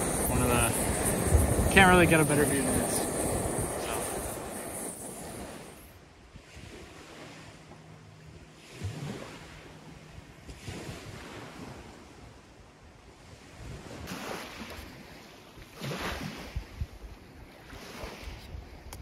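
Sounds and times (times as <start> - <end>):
small waves washing onto gravel: 0.0 - 5.8
wind buffeting microphone: 0.0 - 7.0.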